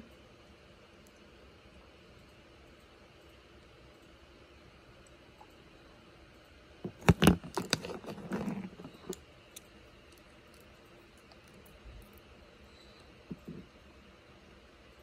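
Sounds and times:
stones clicking and knocking: 0:06.8 - 0:09.2
stone scraping: 0:06.9 - 0:09.2, 0:13.3 - 0:13.7.

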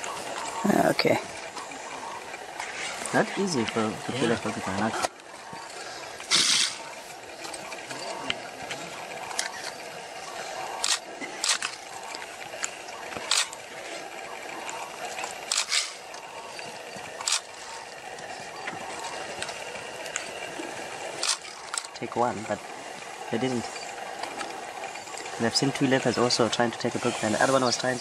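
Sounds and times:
animals scuffling with rattling quills: 0:00.0 - 0:28.0
steady hiss: 0:00.0 - 0:28.0.

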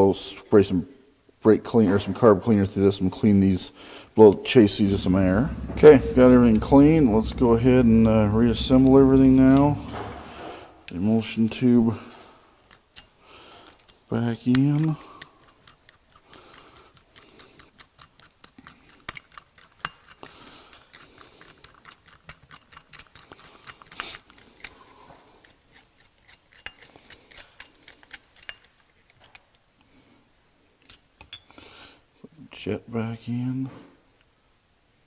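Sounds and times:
small metal parts clicking: 0:12.6 - 0:24.8, 0:25.4 - 0:29.6.

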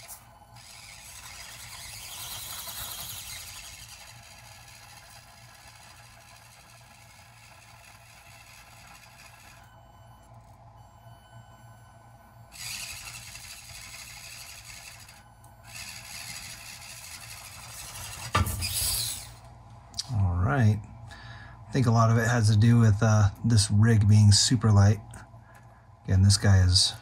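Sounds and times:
small electric motor whirring: 0:00.0 - 0:10.6, 0:12.5 - 0:19.5
toy truck dropping onto floor: 0:18.2 - 0:19.1.

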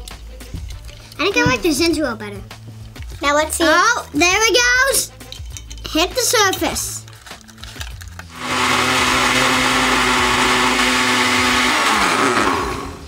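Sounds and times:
blender motor humming: 0:08.3 - 0:13.0.

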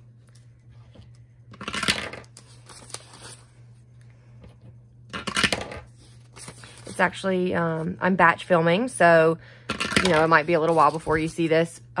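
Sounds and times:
paper bills rustling: 0:01.6 - 0:03.7.

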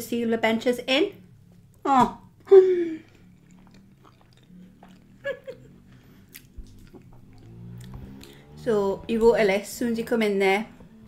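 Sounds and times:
woman chewing food: 0:01.5 - 0:08.4.

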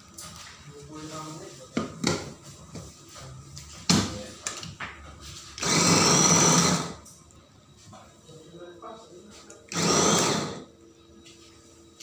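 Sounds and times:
food chopper motor running: 0:05.6 - 0:07.0, 0:09.7 - 0:10.6.

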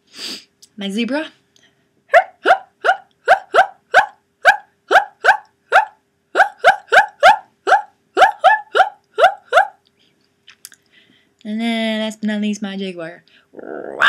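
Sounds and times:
person imitating zebra yelps: 0:02.1 - 0:09.8.

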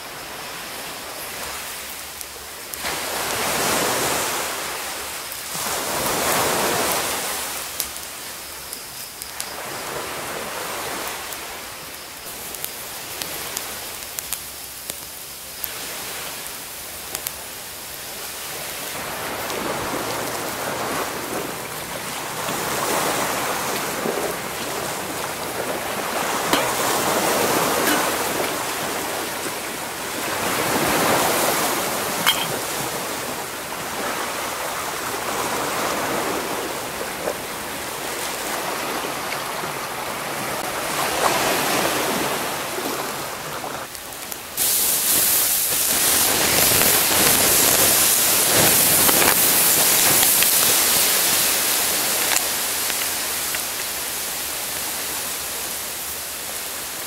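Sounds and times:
waves washing onto rocky shore: 0:00.0 - 0:08.3, 0:15.6 - 0:57.0
campfire crackling and popping: 0:06.3 - 0:09.6, 0:11.0 - 0:32.7, 0:43.8 - 0:54.1.

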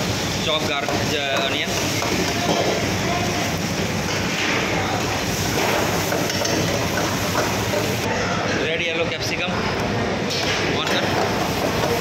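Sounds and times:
garlic and onion sizzling in pan: 0:00.0 - 0:08.0, 0:11.0 - 0:12.0
gas burner rushing: 0:00.0 - 0:08.1, 0:10.1 - 0:12.0.

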